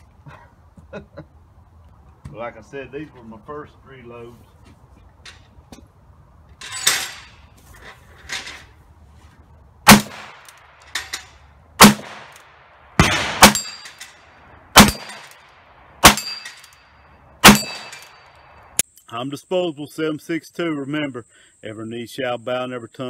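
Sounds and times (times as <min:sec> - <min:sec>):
steel plates ringing: 0:13.4 - 0:14.2, 0:16.1 - 0:18.5.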